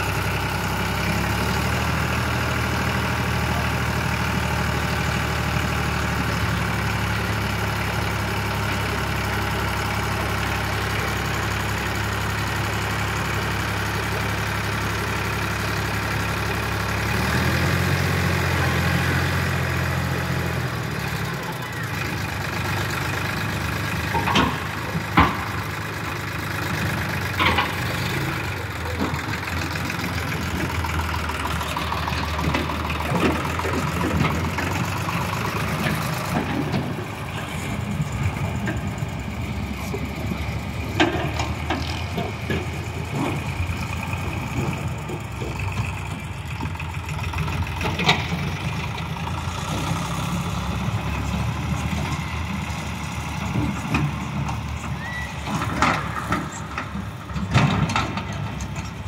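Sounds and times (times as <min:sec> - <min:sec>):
tractor diesel engine running: 0:00.0 - 0:59.0
trailer dumping soil: 0:23.4 - 0:59.0.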